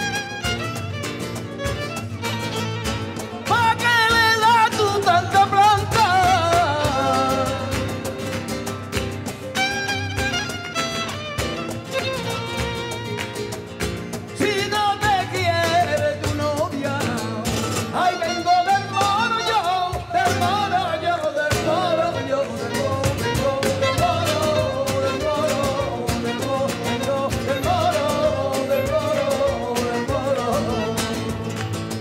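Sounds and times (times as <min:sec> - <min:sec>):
violin: 0:00.0 - 0:14.4, 0:17.1 - 0:32.0
guitar: 0:00.0 - 0:32.0
hand percussion: 0:00.0 - 0:32.0
rhythmic handclaps: 0:00.0 - 0:32.0
person singing: 0:03.4 - 0:08.5, 0:14.4 - 0:31.8.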